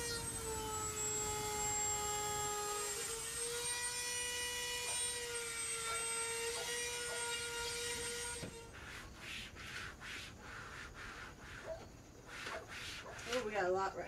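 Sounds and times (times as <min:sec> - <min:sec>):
rotary tool whining: 0:00.0 - 0:10.0.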